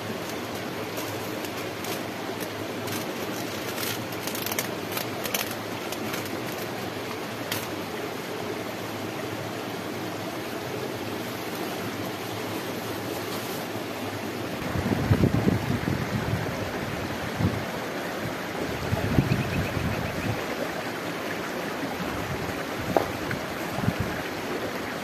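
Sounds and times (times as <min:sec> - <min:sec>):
shallow stream rushing: 0:00.0 - 0:25.0
cling film crackling and tearing: 0:00.2 - 0:06.8.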